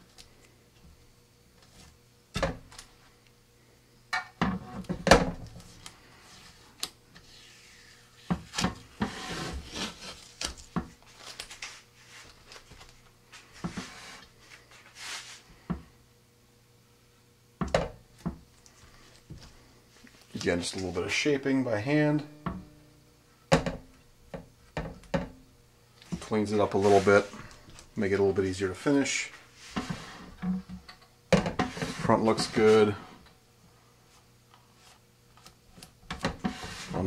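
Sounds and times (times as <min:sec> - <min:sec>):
tape peeling crackle: 0:09.6 - 0:13.1.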